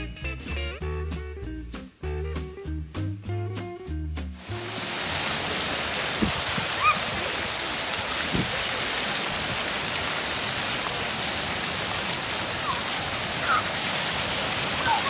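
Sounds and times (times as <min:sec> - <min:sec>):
fountain jets splashing on concrete: 0:04.4 - 0:15.0.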